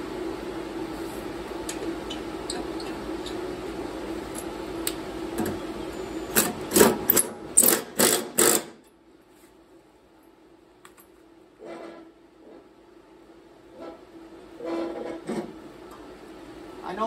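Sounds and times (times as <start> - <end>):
steady low hum: 0.0 - 17.0
cordless drill bursts: 7.6 - 8.8.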